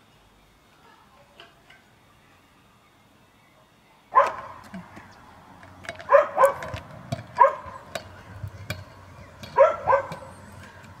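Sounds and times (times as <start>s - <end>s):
dog barking: 4.2s - 4.6s, 6.1s - 6.7s, 7.4s - 7.8s, 9.6s - 10.3s.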